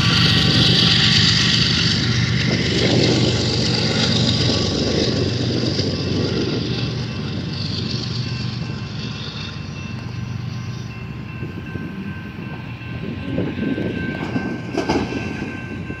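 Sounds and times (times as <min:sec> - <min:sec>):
crossing signal bells ringing: 0:00.0 - 0:16.0
diesel train rumbling: 0:00.0 - 0:16.0.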